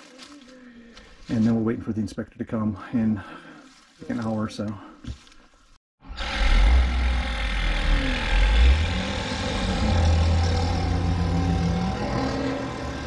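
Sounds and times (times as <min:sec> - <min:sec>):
excavator engine rumbling: 0:06.1 - 0:13.0.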